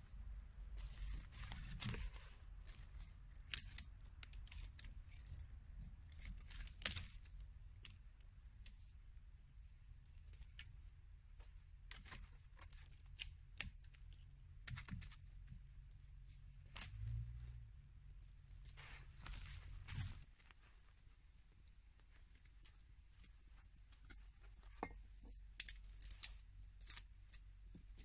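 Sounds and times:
low steady rumble: 0.0 - 12.5, 13.2 - 28.0
dry wood snapping: 1.5 - 5.5, 6.1 - 8.0, 25.5 - 27.4.

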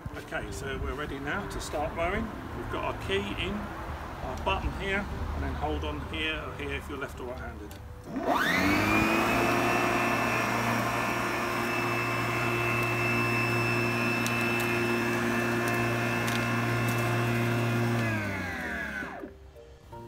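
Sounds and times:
lawnmower motor whining: 7.7 - 19.4
motor spinning down: 8.1 - 19.4.

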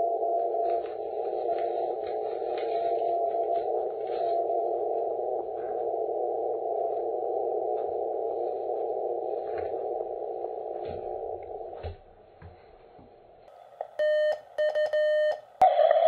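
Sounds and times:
radio band noise hiss: 0.0 - 11.8.

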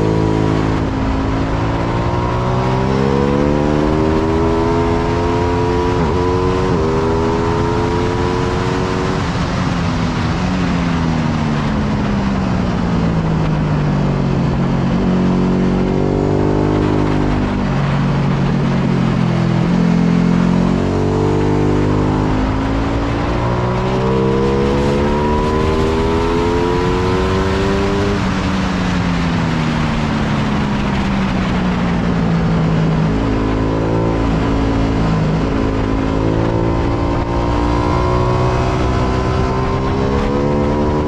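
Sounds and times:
motorcycle engine revving: 0.0 - 9.6, 13.1 - 41.0.

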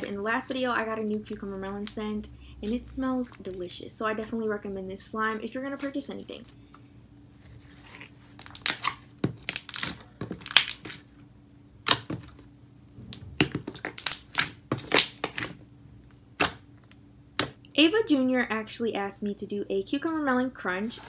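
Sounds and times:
slime clicking and popping: 11.8 - 12.1, 13.2 - 15.5.

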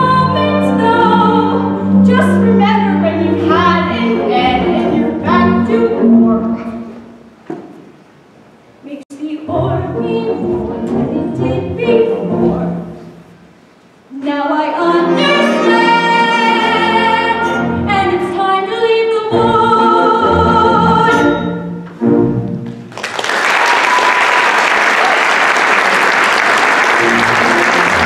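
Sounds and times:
woman singing: 0.0 - 6.7, 8.9 - 12.8, 14.1 - 21.4
audience applause: 22.9 - 28.0.

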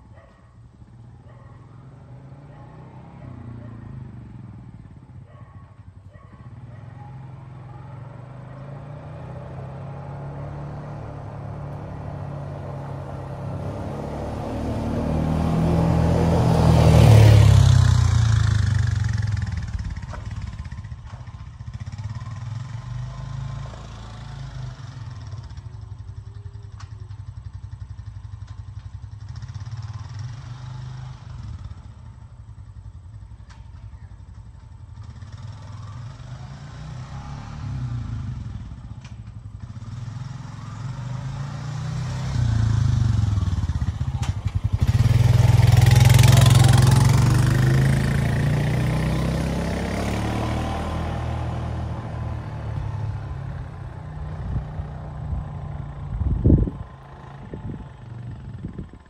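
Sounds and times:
vehicle driving past: 0.9 - 5.3, 6.4 - 26.1, 34.9 - 59.0
vehicle engine running: 51.5 - 59.0.

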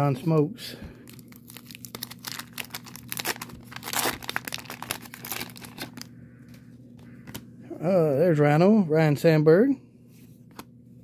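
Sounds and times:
wax paper wrapper crinkling: 1.0 - 6.1.

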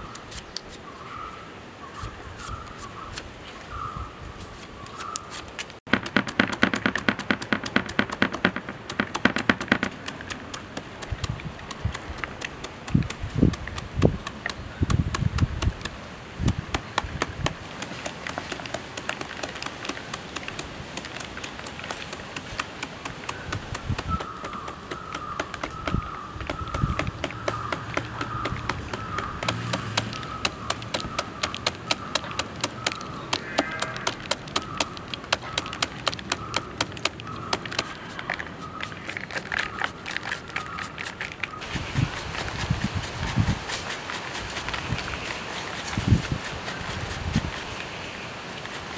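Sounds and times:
knife chopping fruit: 5.9 - 37.9.

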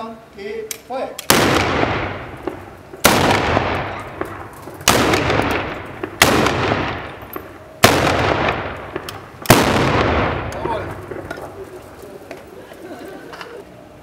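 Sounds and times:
salute gun bangs with echo: 1.3 - 7.2, 7.8 - 11.2.

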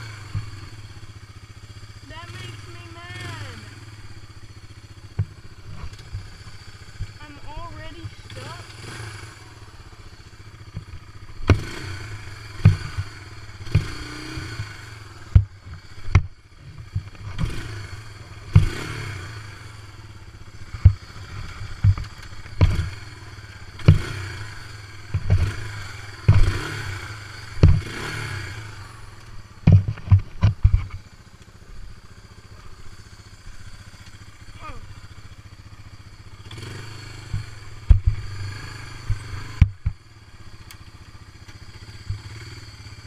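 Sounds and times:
atv engine running: 0.0 - 43.0
thumps and clatters: 21.8 - 23.0, 26.3 - 26.5, 27.6 - 27.9, 29.6 - 31.1, 37.3 - 38.2, 39.1 - 40.0.

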